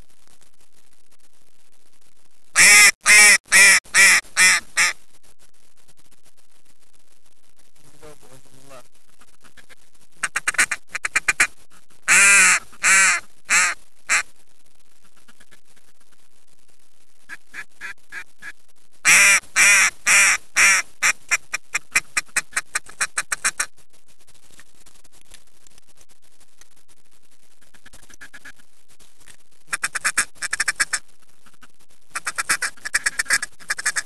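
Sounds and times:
duck call quacks: 2.6 - 5.0, 9.6 - 11.5, 12.1 - 14.3, 17.3 - 23.7, 29.7 - 31.0, 32.1 - 34.0.

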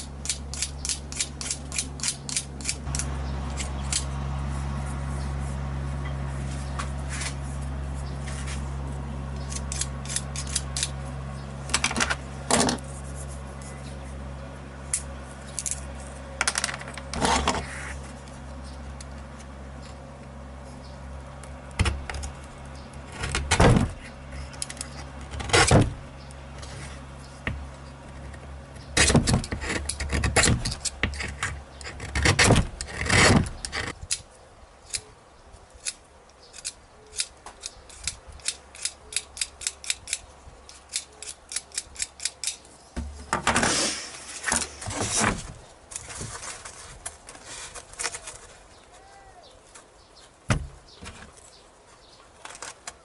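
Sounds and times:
low hum: 0.0 - 34.2
scrapes and knocks: 15.7 - 18.8, 43.0 - 48.7.

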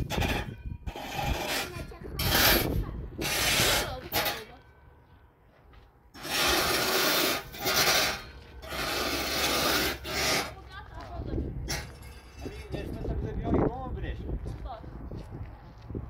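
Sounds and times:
rough scraping strokes: 0.0 - 4.6, 6.1 - 10.8.

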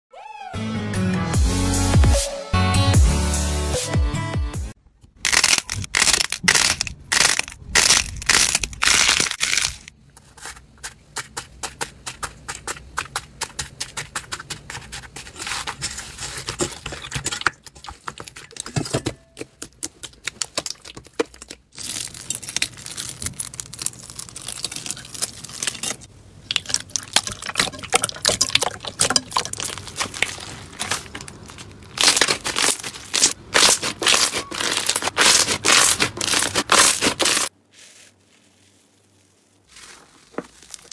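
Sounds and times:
slime crackling and popping: 5.3 - 9.9, 19.6 - 37.5.

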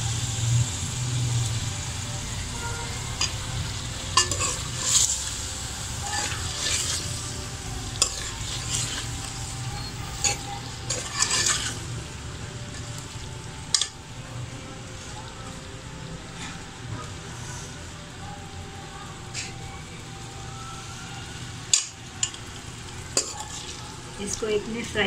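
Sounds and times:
frying sizzle: 0.0 - 25.0
ladle scraping and knocking pot: 10.2 - 11.8.

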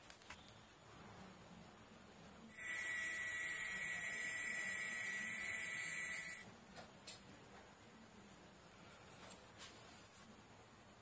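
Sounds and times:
small pump motor whining: 2.6 - 6.4.

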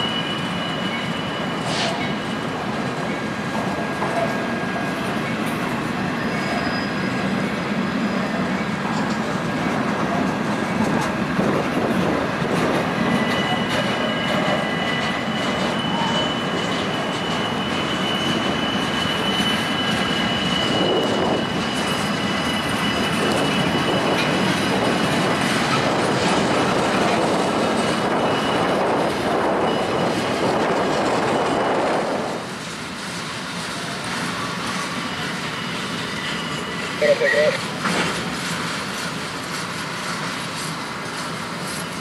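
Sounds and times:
high-pitched wheel squeal: 0.0 - 3.2, 6.1 - 8.4, 12.9 - 26.0, 26.7 - 32.4, 35.0 - 37.6
train wheels clattering on rail: 0.0 - 37.0, 37.6 - 42.0.

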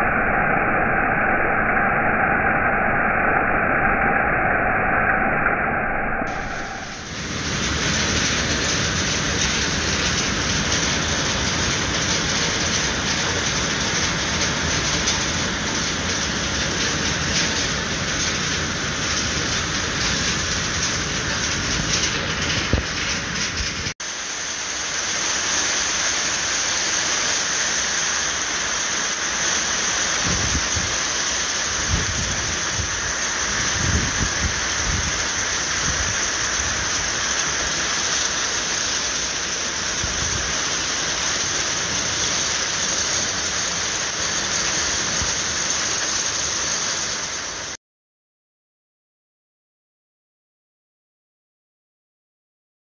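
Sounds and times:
heavy rain and hail: 6.3 - 47.8.

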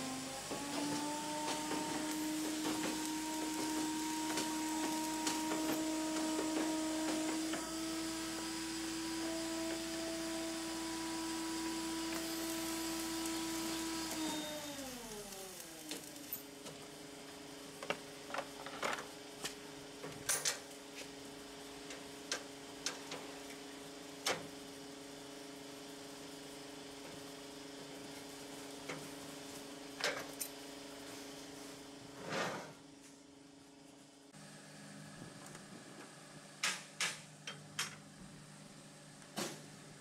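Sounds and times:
steady machine hum: 0.0 - 30.0.

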